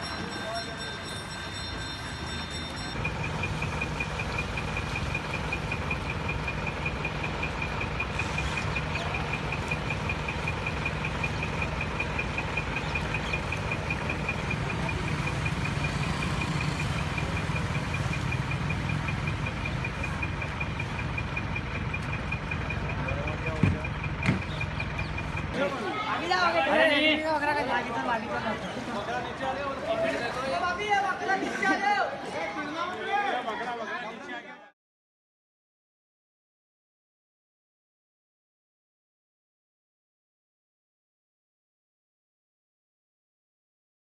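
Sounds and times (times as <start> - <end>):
rapid pulsing beep: 0.0 - 25.5
engine idling: 3.0 - 26.0.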